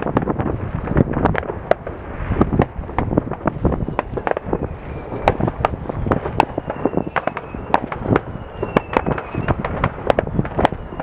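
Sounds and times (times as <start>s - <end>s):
fireworks bangs and pops: 0.0s - 11.0s.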